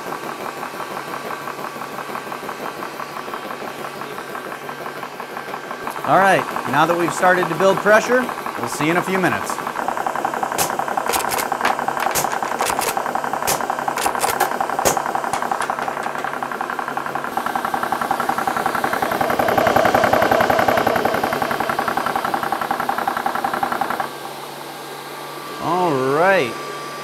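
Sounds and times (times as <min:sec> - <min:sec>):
compressor chugging: 0:00.0 - 0:27.0
sharp clicks: 0:10.0 - 0:17.5.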